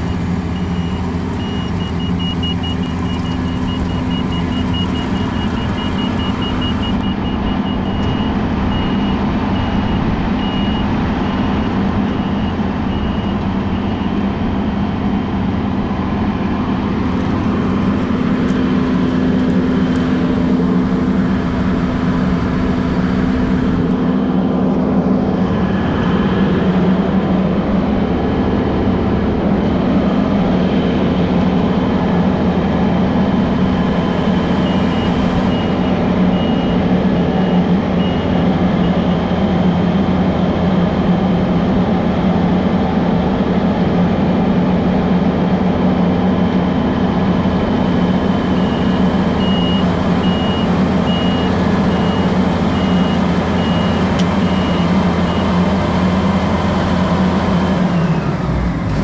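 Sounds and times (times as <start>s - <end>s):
reversing beeps: 0.0s - 14.4s, 33.6s - 39.4s, 47.5s - 55.8s
diesel engine running: 0.0s - 59.0s.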